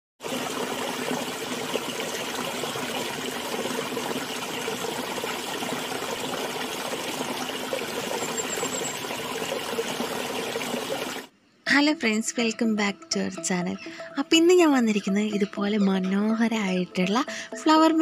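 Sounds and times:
stream flowing over stones: 0:00.2 - 0:11.3.

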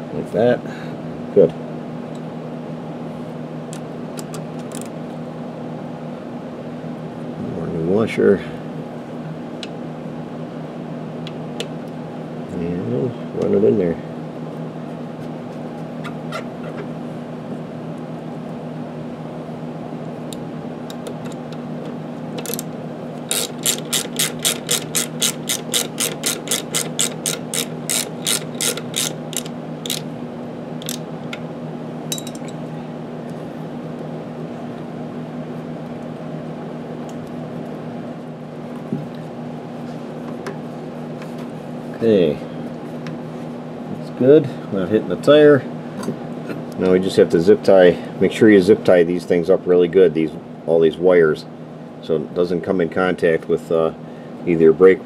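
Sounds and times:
steady low hum: 0:00.0 - 0:55.0
ratchet wrench clicking: 0:23.3 - 0:30.0.

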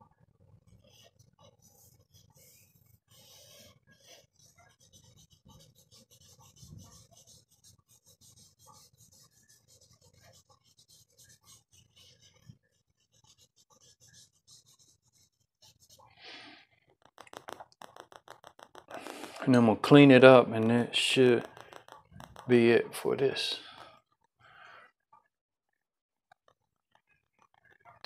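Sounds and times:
charcoal scratching on paper: 0:00.7 - 0:16.2, 0:17.0 - 0:23.9.

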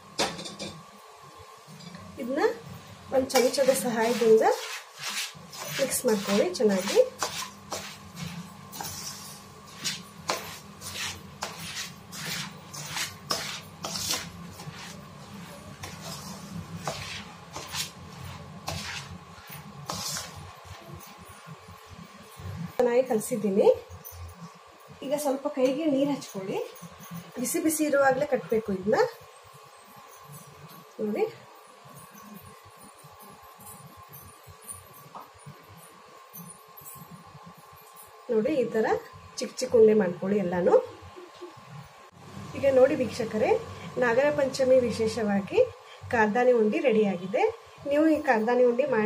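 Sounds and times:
spoon scraping a steel bowl: 0:03.3 - 0:21.5.

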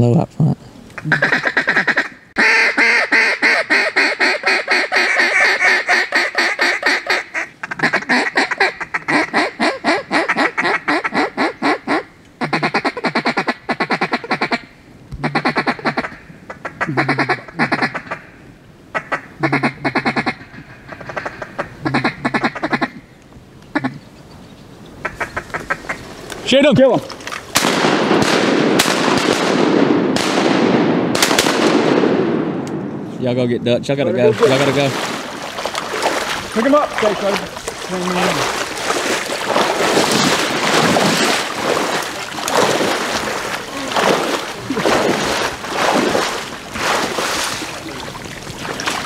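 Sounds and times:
duck call quacking: 0:01.0 - 0:18.2, 0:19.0 - 0:23.0.

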